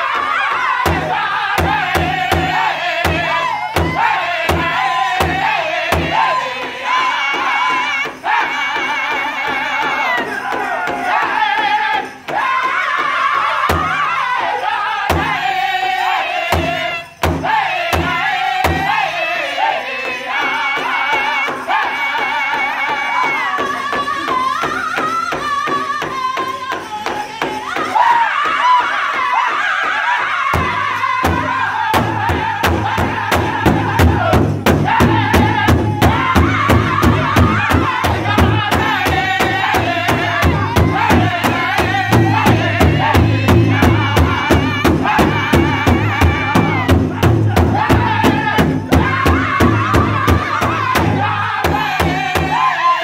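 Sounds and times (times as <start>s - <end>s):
large hide drum beats: 0.0s - 52.9s
men singing in high voices: 0.0s - 53.0s.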